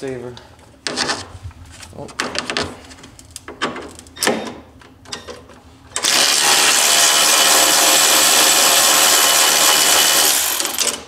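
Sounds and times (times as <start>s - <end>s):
electric ratchet motor running: 6.0s - 11.0s
ratchet clicks and knocks: 9.0s - 11.0s.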